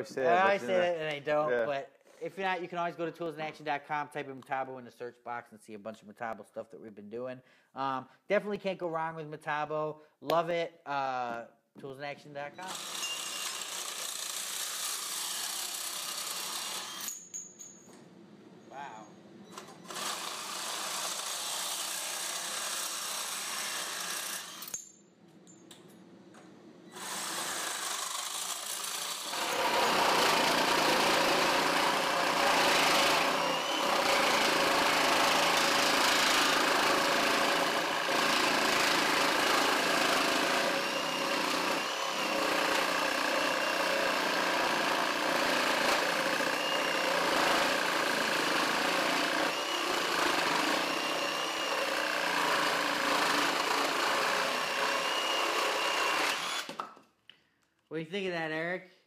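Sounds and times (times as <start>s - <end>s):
reciprocating saw cutting: 12.6s - 17.2s, 19.8s - 24.8s, 26.9s - 56.8s.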